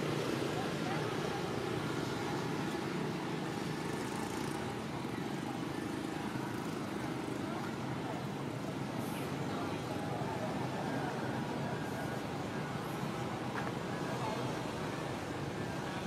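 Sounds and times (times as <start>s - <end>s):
faint voices: 0.0s - 16.0s.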